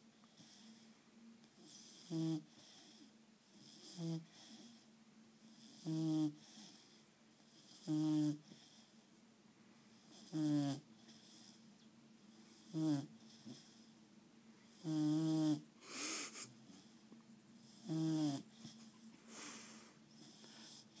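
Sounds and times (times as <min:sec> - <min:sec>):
dog snoring: 0:00.3 - 0:00.8, 0:01.6 - 0:08.9, 0:10.0 - 0:11.6, 0:12.5 - 0:13.9, 0:14.7 - 0:17.0, 0:17.6 - 0:21.0
breathy puffs of air: 0:15.8 - 0:16.6, 0:19.2 - 0:20.1.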